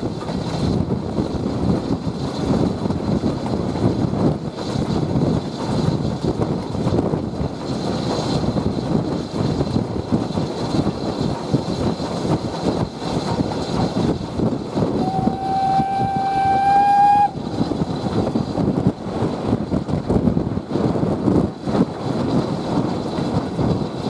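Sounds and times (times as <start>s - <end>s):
steam train rumbling: 0.0s - 24.0s
wind on microphone: 0.0s - 24.0s
steam whistle blowing: 15.0s - 17.4s.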